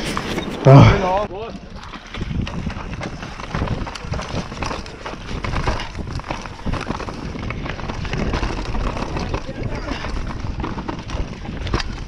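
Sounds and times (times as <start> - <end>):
bike rattling and knocking: 0.0 - 12.0
bike tyres rumbling on dirt: 0.0 - 12.0.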